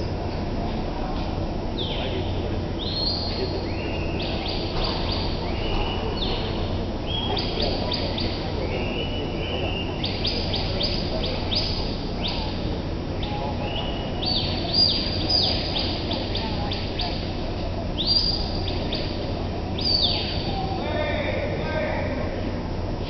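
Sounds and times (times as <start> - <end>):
steady low hum: 0.0 - 23.0
birds chirping: 1.7 - 21.9.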